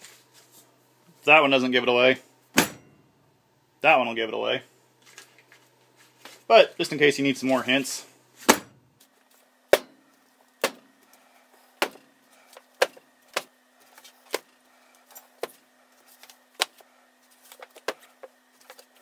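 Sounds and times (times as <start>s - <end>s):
faint steady hum: 0.0s - 19.0s
books slapped onto desk: 8.4s - 8.8s, 11.8s - 12.0s.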